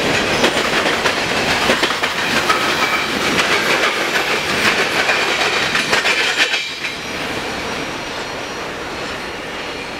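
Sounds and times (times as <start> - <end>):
train wheels clattering over rail joints: 0.0 - 7.3
train rolling rumble: 0.0 - 9.9.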